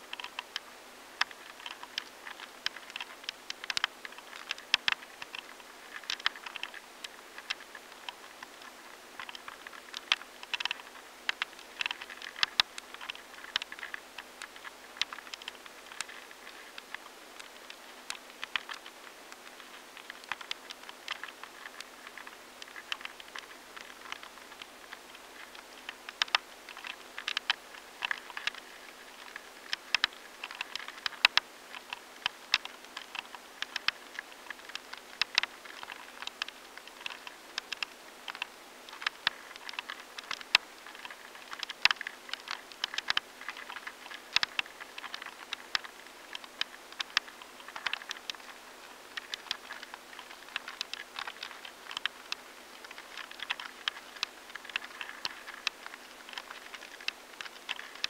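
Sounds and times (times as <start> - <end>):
faint steady hum: 0.0 - 58.0
larvae feeding dry clicks: 0.0 - 58.0.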